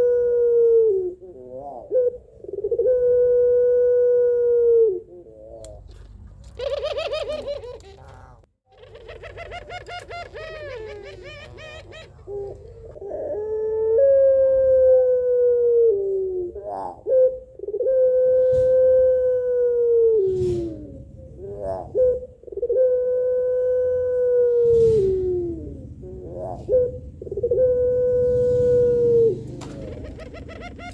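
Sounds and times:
dove cooing: 0.0s - 5.9s, 6.5s - 30.9s
dove warbling notes: 8.8s - 30.9s.

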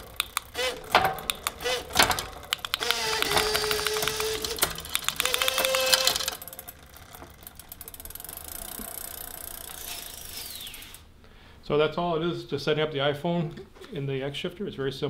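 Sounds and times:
small electric motor whirring: 0.0s - 7.1s, 7.9s - 11.1s
bicycle chain clicking: 0.0s - 11.1s.

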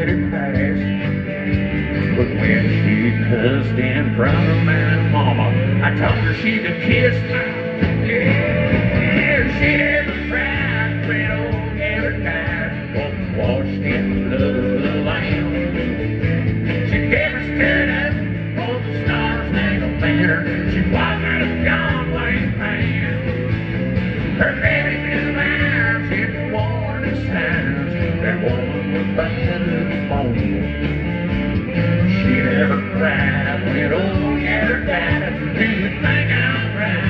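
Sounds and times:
bass guitar: 0.0s - 37.0s
drum kit: 0.0s - 37.0s
electric and acoustic guitars: 0.0s - 37.0s.

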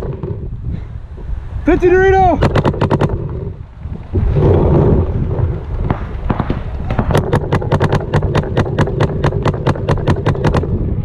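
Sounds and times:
paintball marker firing: 2.4s - 3.3s, 5.7s - 10.7s.

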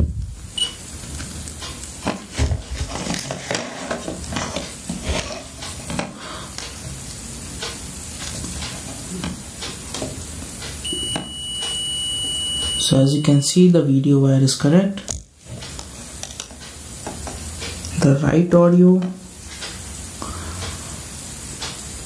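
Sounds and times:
multimeter continuity beep: 0.6s - 0.8s, 10.8s - 13.6s.

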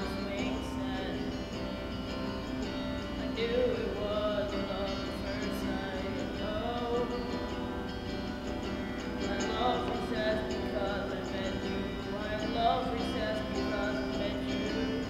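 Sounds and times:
person singing slow melody: 0.0s - 15.0s
strummed acoustic guitar: 0.0s - 15.0s.

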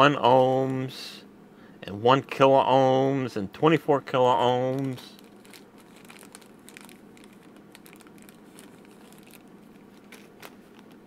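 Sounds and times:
plastic bags crinkling: 4.7s - 11.0s.

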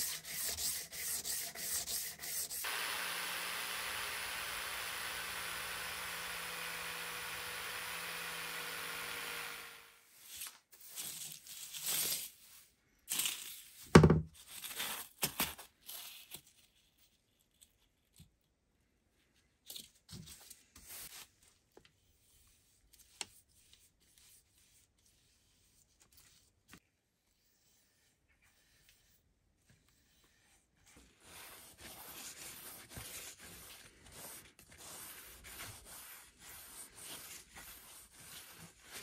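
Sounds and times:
sanding wood: 0.0s - 10.2s, 31.2s - 39.0s
motor hum: 2.7s - 9.9s.

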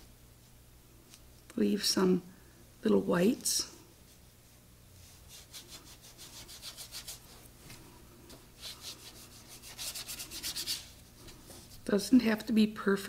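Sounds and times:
brush scrubbing in paint palette: 5.0s - 7.5s, 8.6s - 11.0s.

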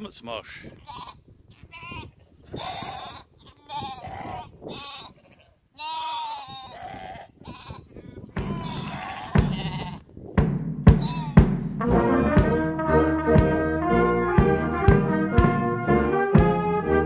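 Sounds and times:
sheep bleating: 0.8s - 10.1s, 11.0s - 11.4s
brass band playing a march: 11.7s - 17.0s.

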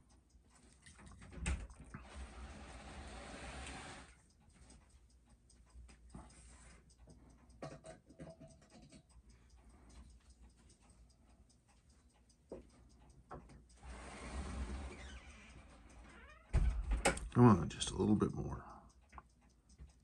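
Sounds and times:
small clicks and taps of tools: 4.2s - 13.8s, 18.3s - 20.0s.

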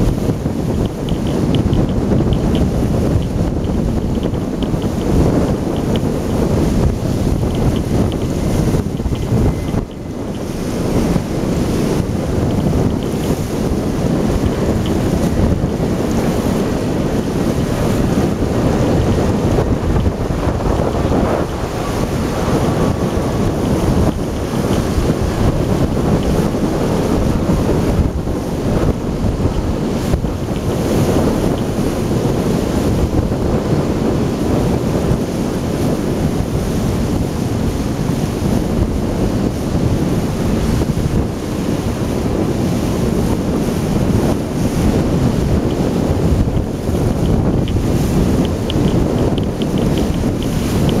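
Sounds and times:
wind rumbling on microphone: 0.0s - 51.0s.

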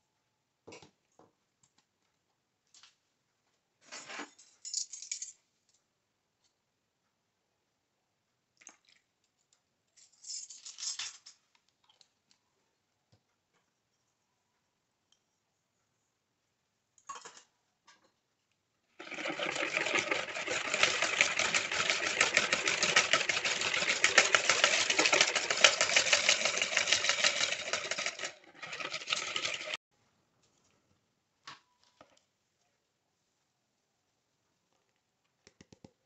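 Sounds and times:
whisk rattling in plastic bowl: 19.0s - 29.8s.

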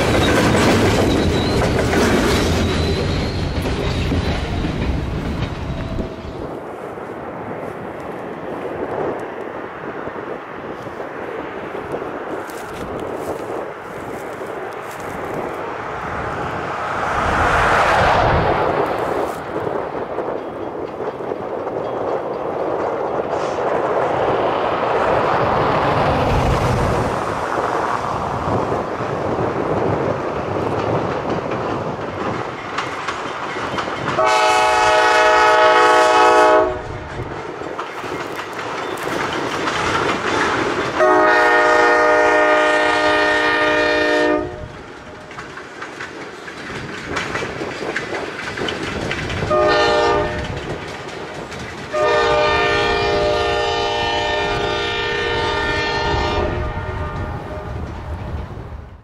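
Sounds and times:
train wheels rumbling on rails: 0.0s - 59.0s
diesel locomotive air horn: 34.2s - 36.9s, 41.0s - 44.7s, 49.5s - 50.5s, 51.9s - 57.8s.

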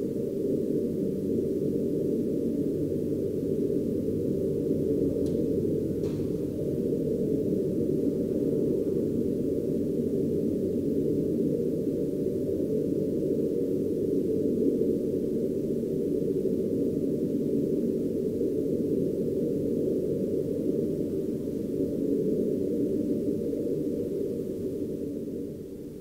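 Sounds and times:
low muffled rumbling: 3.2s - 10.1s.

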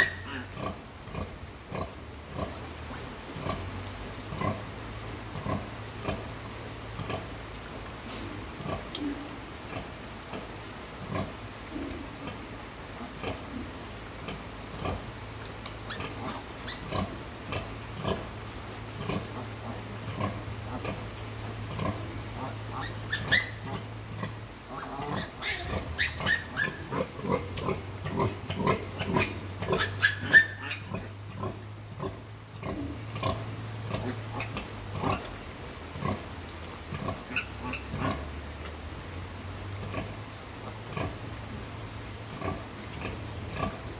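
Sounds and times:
piglets squealing: 0.0s - 0.5s, 22.8s - 23.9s, 24.7s - 26.9s, 29.2s - 30.9s
pig grunts: 0.0s - 2.6s, 4.3s - 4.6s, 21.7s - 35.2s, 42.4s - 43.8s.

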